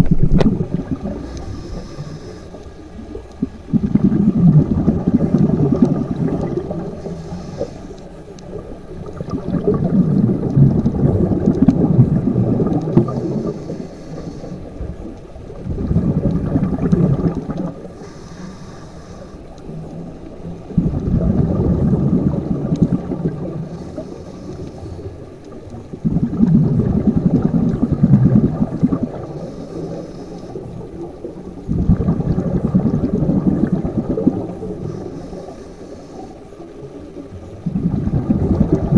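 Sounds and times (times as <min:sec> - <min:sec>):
gurgling rush of exhaled bubbles: 0:00.0 - 0:07.7, 0:08.4 - 0:18.0, 0:19.7 - 0:35.5, 0:36.7 - 0:38.9
regulator demand valve hiss: 0:18.0 - 0:19.6.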